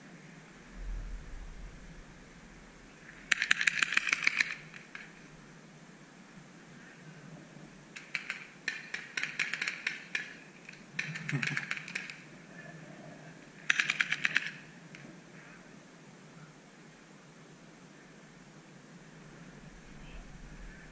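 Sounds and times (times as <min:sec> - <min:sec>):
paintball markers firing: 0:08.0 - 0:10.4, 0:13.6 - 0:14.6.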